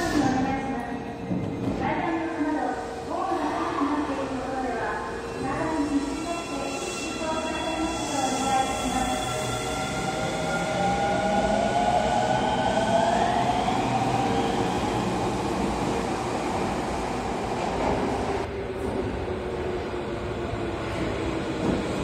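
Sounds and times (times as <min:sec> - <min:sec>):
subway train accelerating past: 0:00.0 - 0:22.0
rumble of train wheels: 0:15.0 - 0:22.0.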